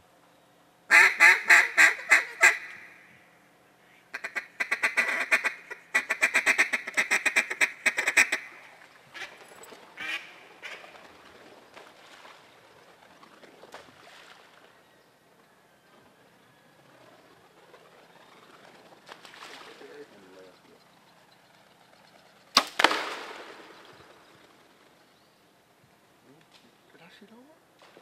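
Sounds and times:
duck call quacks: 0.9s - 3.0s, 4.1s - 9.3s, 10.0s - 10.8s.

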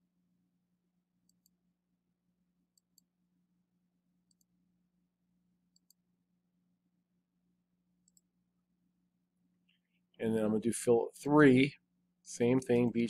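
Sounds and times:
computer mouse clicks: 1.2s - 1.6s, 2.7s - 3.1s, 4.3s - 4.5s, 5.7s - 6.0s, 8.0s - 8.3s.

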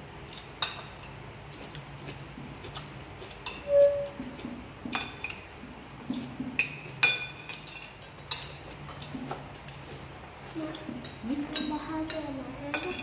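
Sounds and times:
cutlery clinking on plates: 6.1s - 9.4s, 10.9s - 13.0s.

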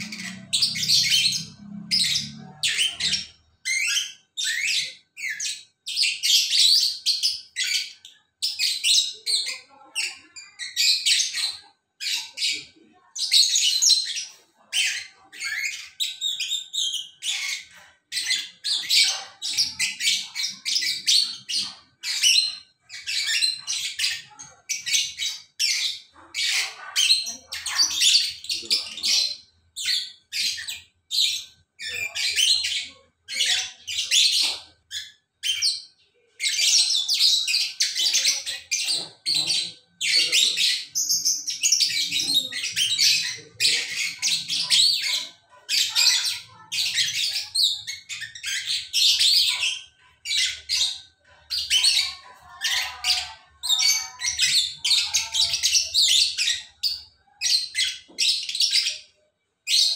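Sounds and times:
lovebirds chattering and screeching: 0.0s - 59.9s.

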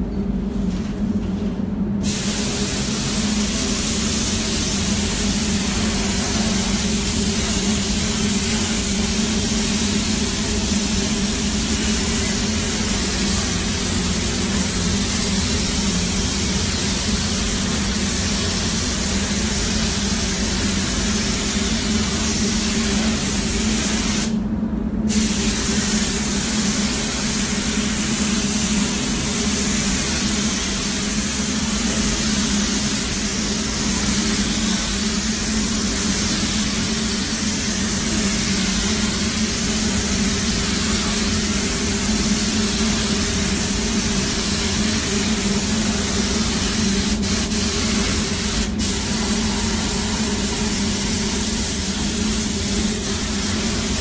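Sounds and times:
steady low hum: 0.0s - 54.0s
paint spray gun hissing: 2.0s - 24.4s, 25.1s - 54.0s.

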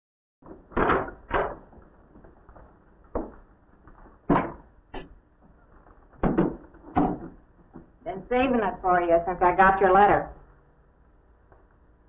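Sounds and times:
low background hiss: 7.4s - 12.0s.

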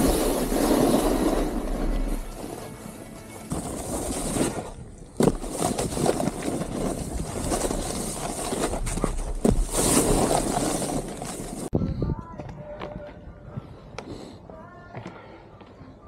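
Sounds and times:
snowboard scraping over snow: 0.0s - 11.8s
wind on microphone: 11.7s - 13.8s.

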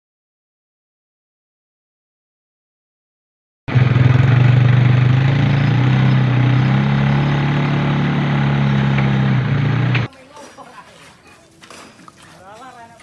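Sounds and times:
small engine running: 3.7s - 10.1s.

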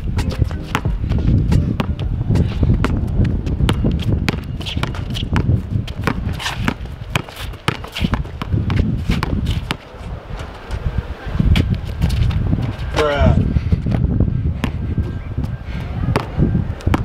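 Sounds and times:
basketball bouncing on asphalt: 0.1s - 9.9s, 13.9s - 17.0s.

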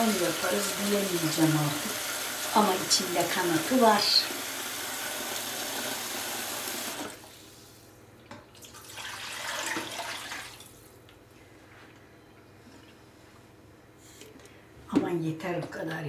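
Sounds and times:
water poured into steel pot: 8.7s - 10.6s.

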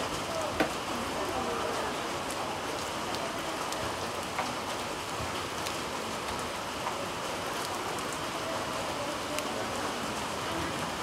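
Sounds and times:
heavy rain: 0.0s - 11.0s
raindrop ticks: 2.1s - 8.2s, 9.2s - 9.6s.

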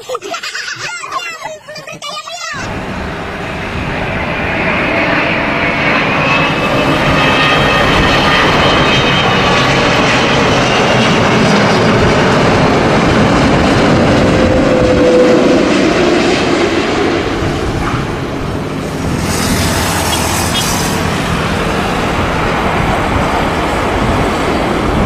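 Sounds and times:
jet engines rushing: 2.6s - 25.0s
faint high engine whine: 2.7s - 25.0s.

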